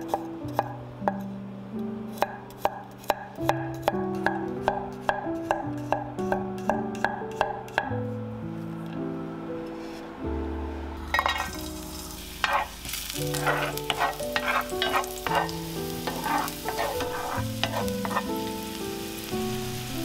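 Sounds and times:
background music: 0.0s - 20.0s
wooden spatula scraping pan: 11.1s - 18.4s
garlic sizzling in oil: 11.1s - 20.0s.

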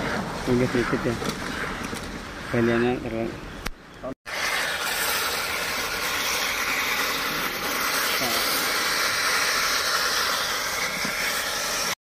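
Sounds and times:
steady hissing noise: 3.8s - 12.0s.

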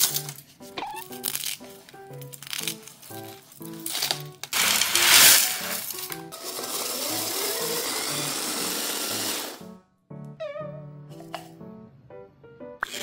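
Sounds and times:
light background music: 0.0s - 13.0s
blender crunching eggshells: 2.4s - 9.6s
blender motor whir: 6.3s - 9.6s.

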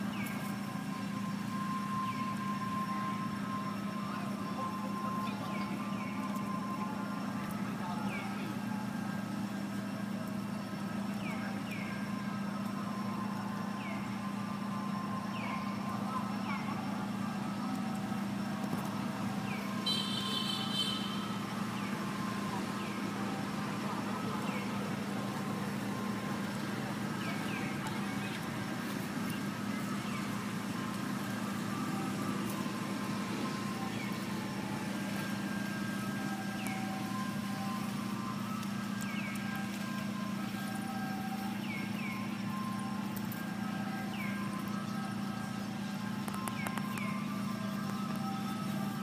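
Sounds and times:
high-pitched call: 19.8s - 21.4s.

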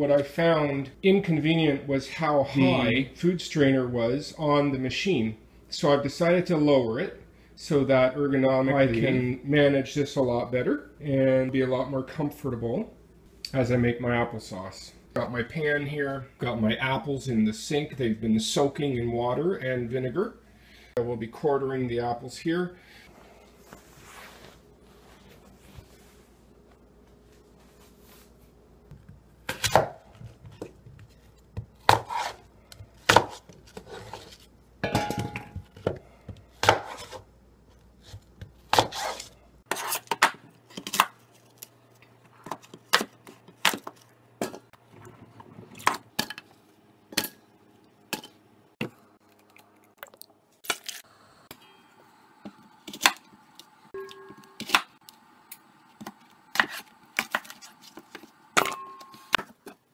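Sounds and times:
knife chopping on plastic board: 29.0s - 32.4s, 33.0s - 33.6s, 35.8s - 37.2s, 38.0s - 39.2s.

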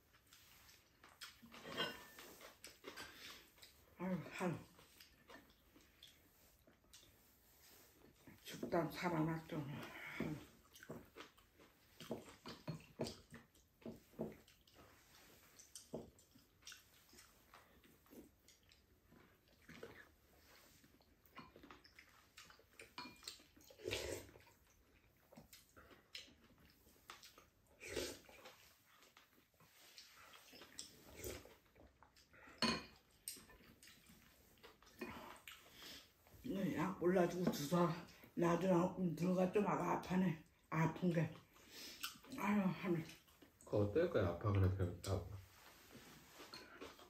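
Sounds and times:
wet chewing mouth smacks: 0.2s - 3.8s, 10.6s - 20.2s, 20.9s - 36.1s
utensils clinking on ceramic bowls: 32.6s - 33.5s.

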